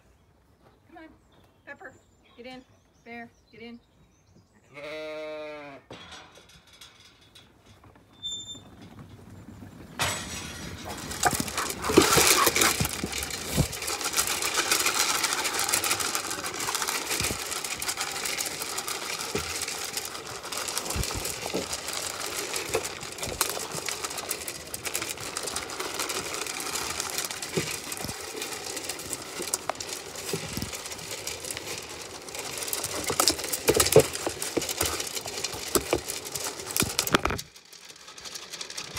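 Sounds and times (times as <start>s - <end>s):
sheep crunching pellets: 8.7s - 38.9s.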